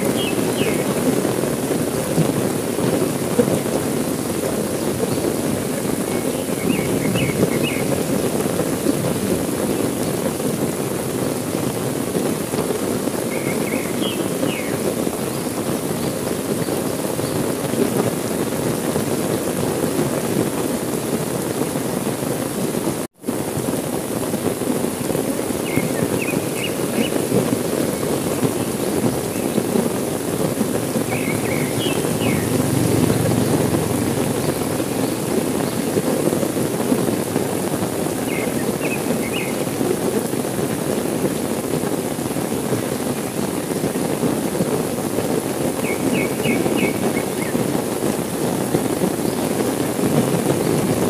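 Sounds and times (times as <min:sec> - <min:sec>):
bird chirping: 0:00.0 - 0:01.0, 0:13.3 - 0:14.8, 0:31.1 - 0:33.6
heavy rain pouring: 0:00.0 - 0:51.0.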